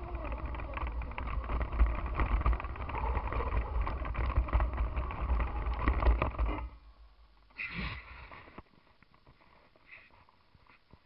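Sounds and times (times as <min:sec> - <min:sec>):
kart rattling and knocking: 0:00.0 - 0:06.8
go-kart rumble: 0:00.0 - 0:06.9.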